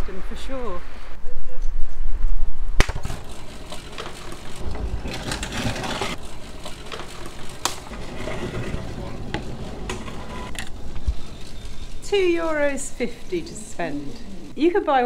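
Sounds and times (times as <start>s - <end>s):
vending machine drawing in bottle: 3.1s - 14.2s.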